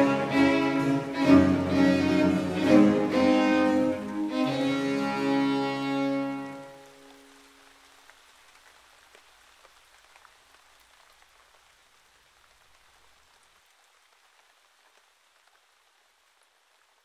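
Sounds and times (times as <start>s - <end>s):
faint rain hiss: 0.0s - 17.0s
raindrop ticks: 6.7s - 17.0s.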